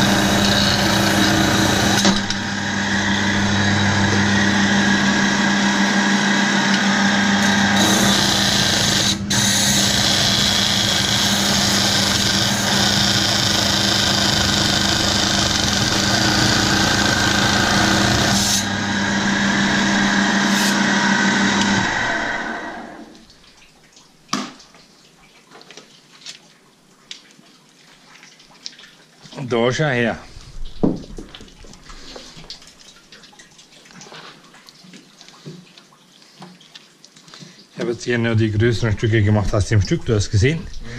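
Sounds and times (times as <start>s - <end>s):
saw motor hum: 0.0s - 23.2s.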